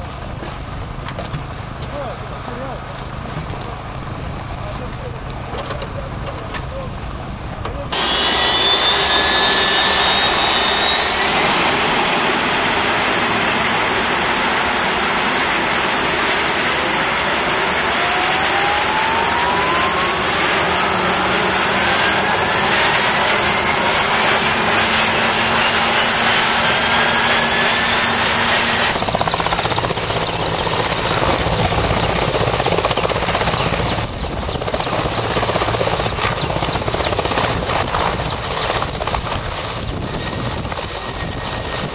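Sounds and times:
helicopter engines and rotor: 1.0s - 41.9s
turbine whine rising in pitch: 7.9s - 38.9s.

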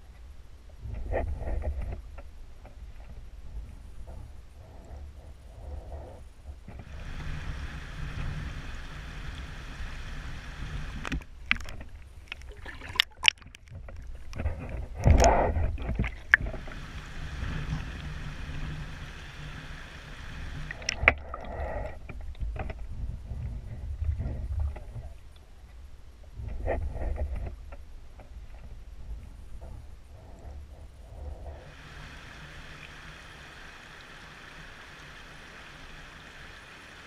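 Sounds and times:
river current rushing underwater: 6.9s - 22.0s, 31.6s - 37.0s
sharp clicks and knocks: 11.0s - 16.6s.

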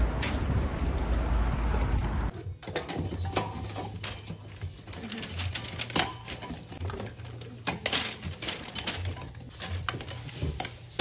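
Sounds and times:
spray cans clinking together: 2.6s - 11.0s.

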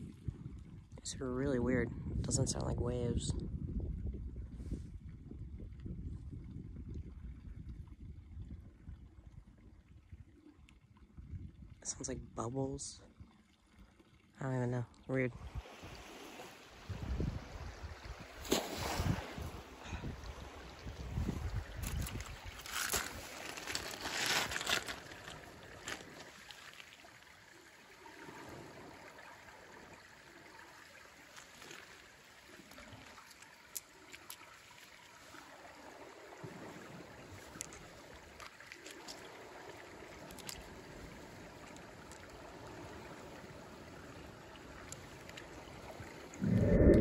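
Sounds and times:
water lapping over pebbles: 15.4s - 47.0s.

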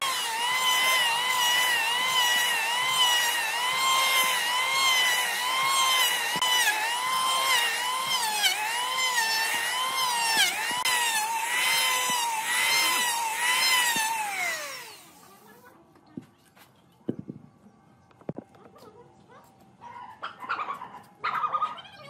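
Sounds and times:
electric planer shaving wood: 0.0s - 15.4s.

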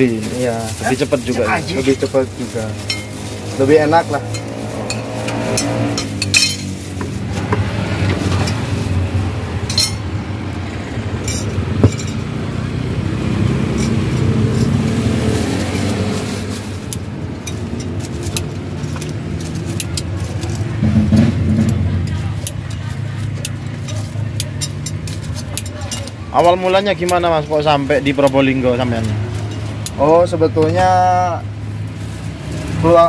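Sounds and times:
road traffic: 0.0s - 33.0s
tongs and spoon clinking plates: 4.1s - 6.8s, 9.6s - 10.1s, 16.8s - 20.7s, 21.5s - 30.8s.

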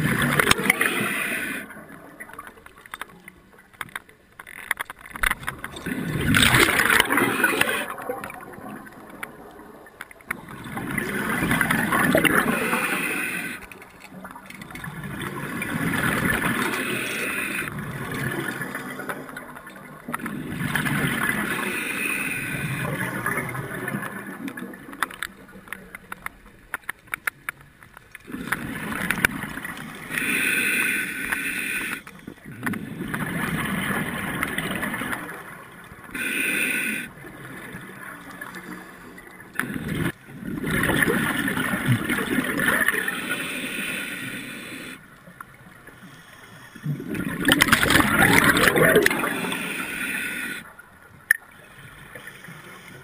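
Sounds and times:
rush of bubbles: 0.0s - 2.3s, 5.4s - 13.6s, 14.7s - 19.5s, 39.5s - 43.3s, 46.8s - 50.6s
scuba regulator breathing: 0.4s - 1.9s, 6.3s - 8.0s, 11.8s - 13.9s, 16.1s - 17.7s, 21.3s - 23.0s, 29.9s - 33.0s, 36.1s - 37.4s, 42.8s - 45.1s, 45.9s - 50.7s.

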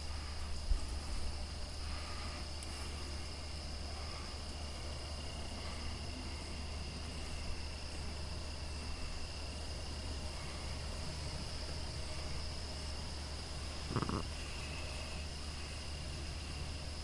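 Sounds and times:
low steady hum: 0.0s - 17.0s
night insects trilling: 0.0s - 17.0s.

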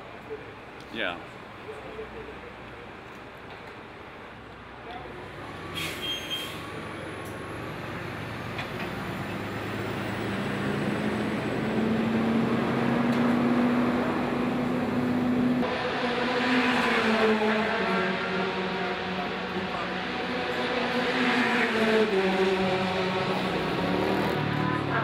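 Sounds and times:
engine drone: 6.7s - 25.0s.

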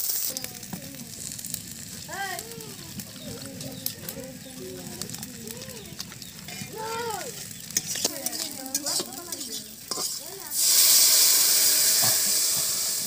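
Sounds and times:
spices sizzling in hot oil: 0.0s - 13.0s
fingers stirring spice in steel bowl: 2.8s - 11.2s.

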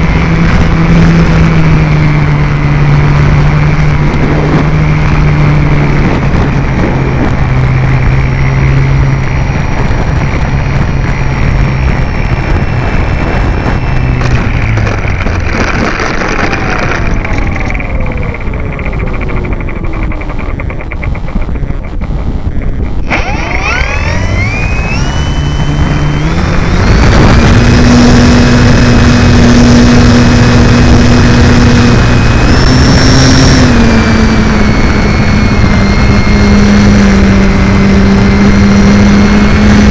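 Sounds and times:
electric motor and propeller: 0.0s - 39.9s
wind: 0.0s - 39.9s.

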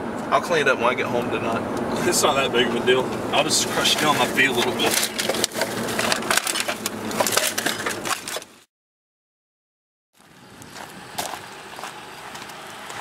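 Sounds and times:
faint outdoor background: 0.0s - 8.7s
crunch: 3.8s - 8.6s, 10.2s - 13.0s.

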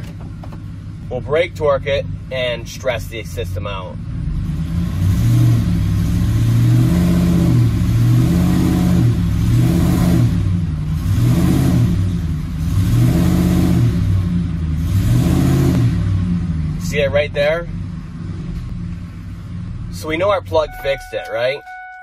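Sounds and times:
engine revving under load: 3.7s - 20.4s.

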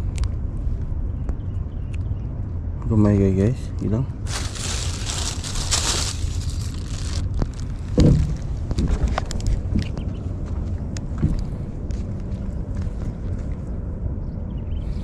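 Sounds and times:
wind rumble on microphone: 0.0s - 15.0s
plastic bag crinkling: 4.2s - 8.5s.

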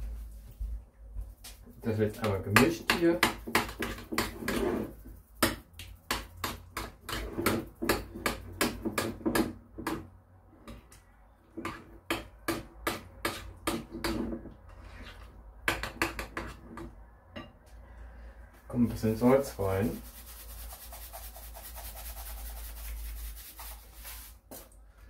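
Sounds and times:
utensil scraping against bowl: 1.7s - 8.6s, 13.2s - 15.4s, 19.2s - 24.6s.

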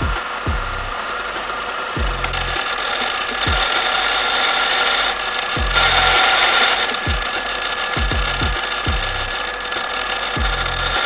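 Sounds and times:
drill press cutting steel: 0.0s - 11.0s
low thuds falling in pitch: 2.0s - 2.4s, 5.6s - 6.1s, 8.0s - 9.3s.

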